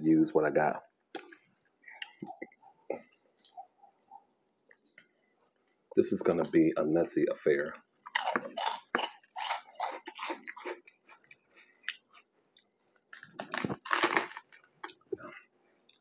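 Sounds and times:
crunchy snacks crackling: 0:07.9 - 0:15.1
sandwich crunching pressed by hand: 0:13.1 - 0:15.0.

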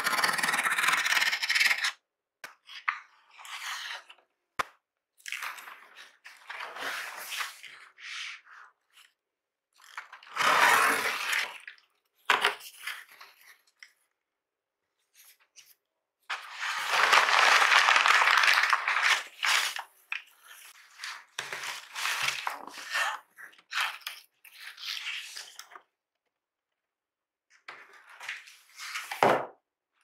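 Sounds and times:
box flaps and paper rustling: 0:16.3 - 0:19.8
plastic wrap crinkling: 0:16.4 - 0:19.9.

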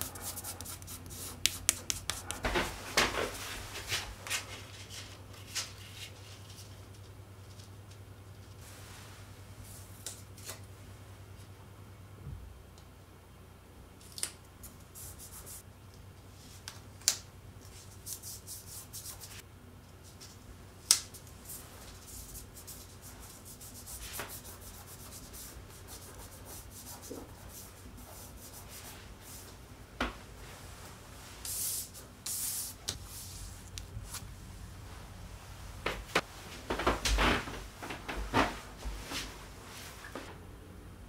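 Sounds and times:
hands rubbing tape on wall: 0:00.0 - 0:06.8, 0:21.4 - 0:29.5, 0:31.4 - 0:34.3.

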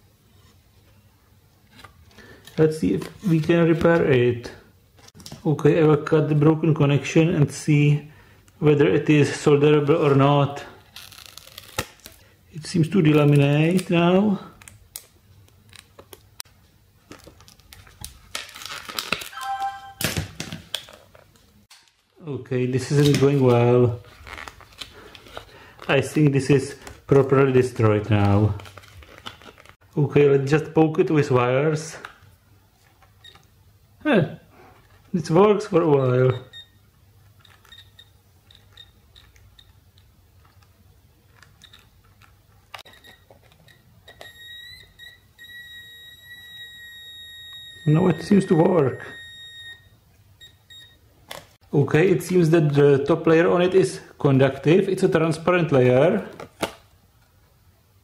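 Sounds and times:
thin plastic crinkling: 0:10.0 - 0:12.3, 0:13.0 - 0:16.4, 0:17.0 - 0:22.2, 0:22.9 - 0:29.8
wire contacts clicking and crackling: 0:37.3 - 0:40.7, 0:41.3 - 0:45.6.

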